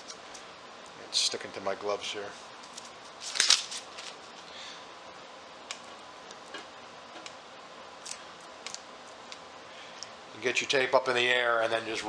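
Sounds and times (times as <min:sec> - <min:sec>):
tape ripping: 0:02.6 - 0:04.2.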